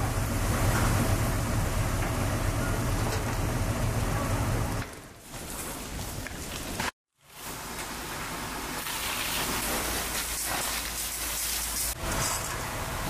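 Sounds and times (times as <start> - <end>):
fire burning: 0.0 - 13.0
water jets hissing: 8.4 - 12.2.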